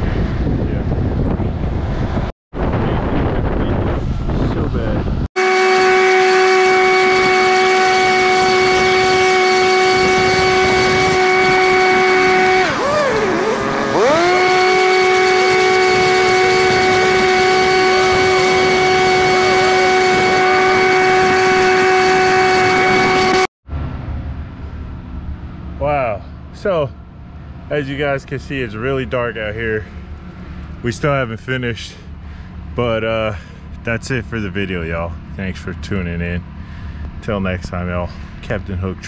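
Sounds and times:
small engine whining: 0:05.4 - 0:23.5.

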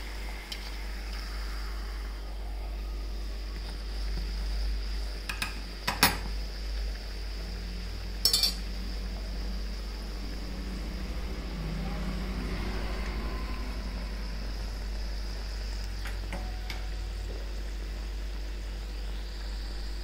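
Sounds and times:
oil sizzling while deep-frying: 0:00.0 - 0:20.0
metal spoon clinking on metal pan: 0:08.2 - 0:08.6.

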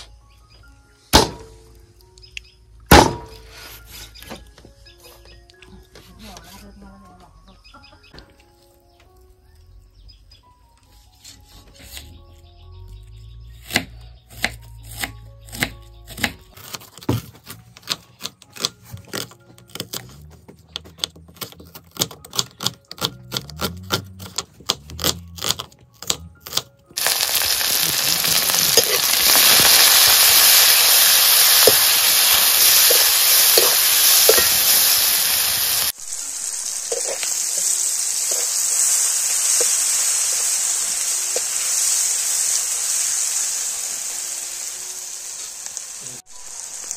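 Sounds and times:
onions sizzling in hot oil: 0:27.0 - 0:46.9.

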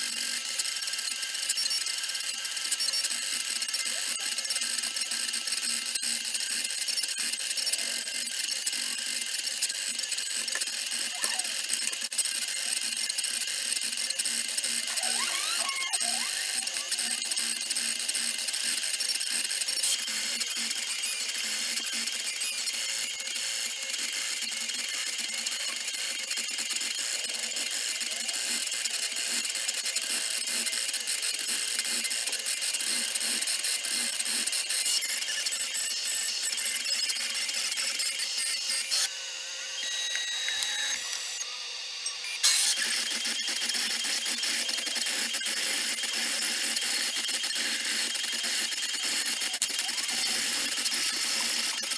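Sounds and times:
engraving spindle high-pitched whine: 0:00.0 - 0:51.9.

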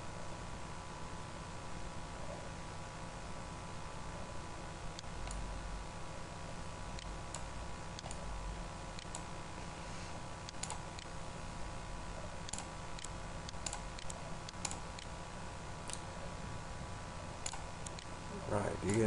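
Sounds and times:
steady low hum: 0:00.0 - 0:19.0
computer mouse clicking: 0:05.0 - 0:05.4, 0:07.0 - 0:08.2, 0:09.0 - 0:09.3, 0:10.4 - 0:11.1, 0:12.4 - 0:15.1, 0:15.8 - 0:16.1, 0:17.4 - 0:18.1.

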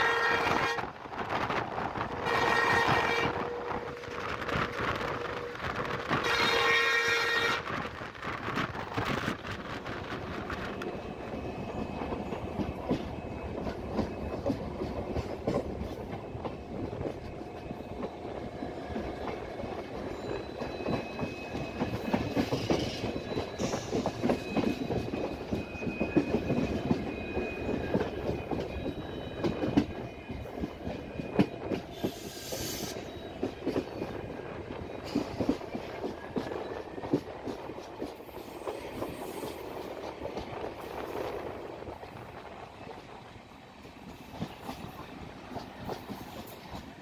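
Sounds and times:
train rumble: 0:00.0 - 0:47.0
train wheels clattering over rails: 0:07.2 - 0:47.0.

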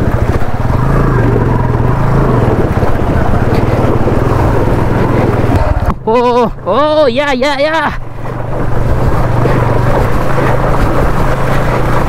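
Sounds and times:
motorcycle engine running: 0:00.0 - 0:12.0
water rushing and splashing: 0:00.0 - 0:12.0.

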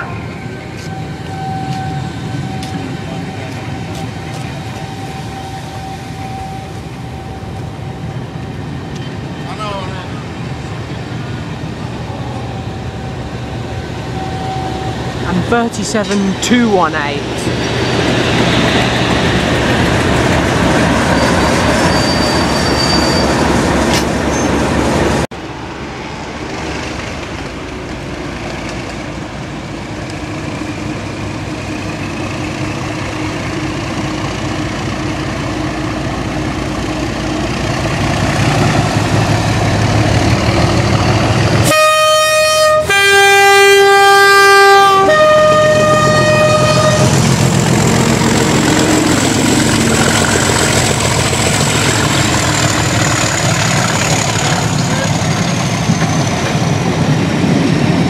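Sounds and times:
diesel locomotive engines: 0:00.0 - 0:58.0
two-tone train horn: 0:41.6 - 0:47.3.

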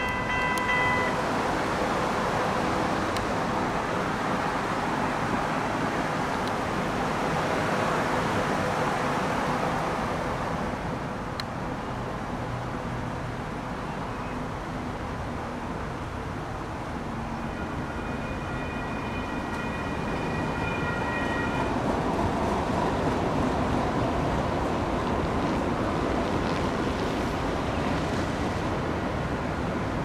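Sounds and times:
light rail train approaching: 0:00.0 - 0:30.0
traffic noise: 0:00.0 - 0:30.0
wind: 0:00.0 - 0:30.0.

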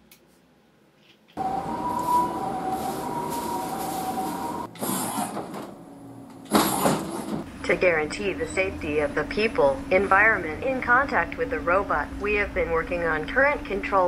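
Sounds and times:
robot arm motors whining: 0:04.7 - 0:05.5.

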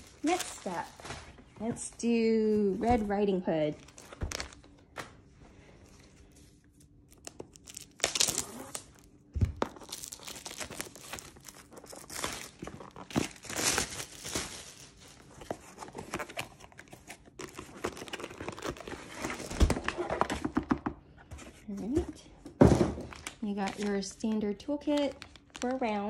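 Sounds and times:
plastic crinkling and tearing: 0:00.0 - 0:01.4, 0:06.6 - 0:20.3, 0:23.1 - 0:24.1, 0:24.8 - 0:26.0.

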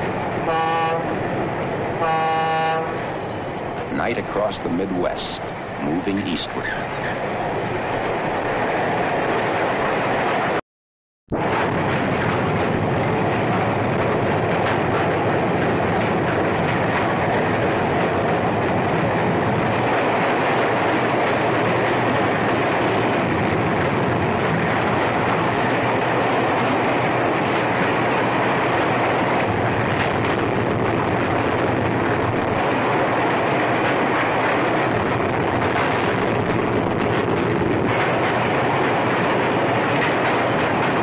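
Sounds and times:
train wheels rumbling on rail: 0:00.0 - 0:10.6, 0:11.3 - 0:41.0.

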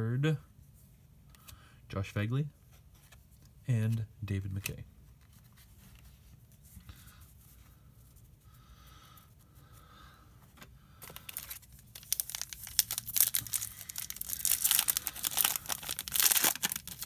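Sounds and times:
foil wrapper crinkling and tearing: 0:11.0 - 0:17.0.

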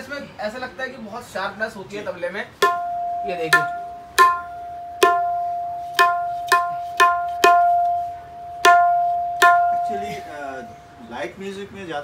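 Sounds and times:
tabla strokes ringing: 0:02.6 - 0:10.8.

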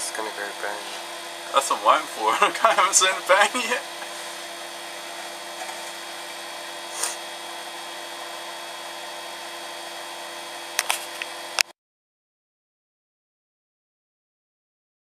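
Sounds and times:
microwave oven humming: 0:00.0 - 0:11.7.

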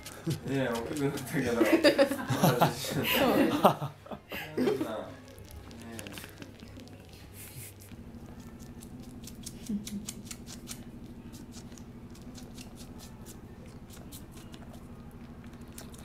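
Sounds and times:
kitten suckling clicks: 0:00.0 - 0:01.4, 0:05.2 - 0:16.0
cat purring: 0:00.0 - 0:01.6, 0:05.1 - 0:16.0.

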